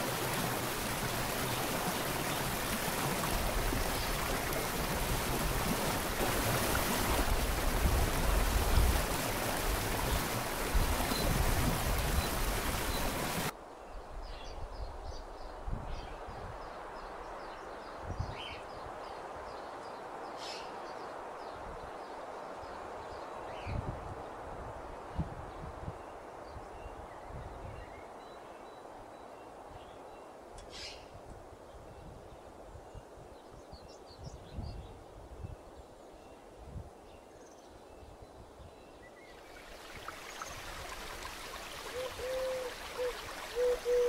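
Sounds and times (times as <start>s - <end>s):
waterfall rushing: 0.0s - 13.5s, 39.6s - 44.0s
low gusts of wind: 0.0s - 44.0s.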